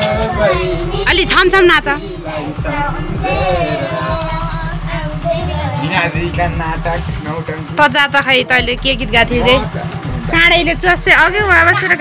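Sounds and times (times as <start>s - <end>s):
children and women singing: 0.0s - 6.1s
low pulsing: 0.0s - 11.9s.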